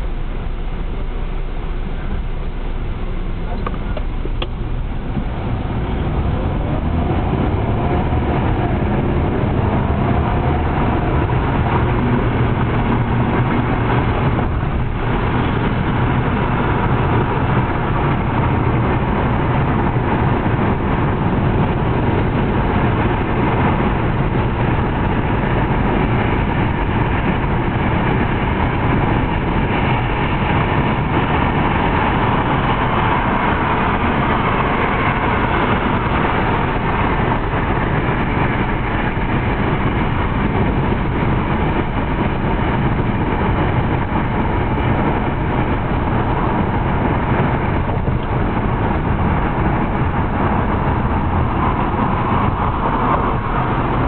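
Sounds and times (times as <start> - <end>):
car engine accelerating: 0.0 - 54.0
tyre road noise: 0.0 - 54.0.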